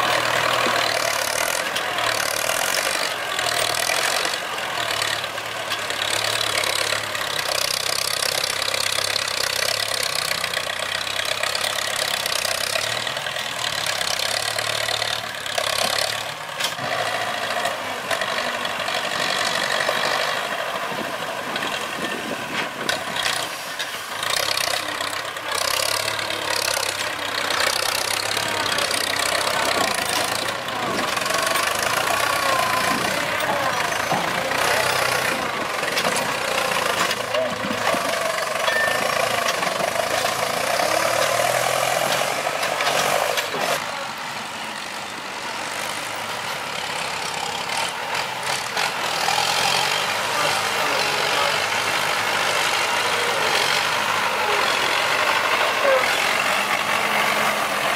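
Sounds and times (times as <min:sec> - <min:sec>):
diesel engine knocking clatter: 0:00.0 - 0:16.5, 0:24.1 - 0:43.8.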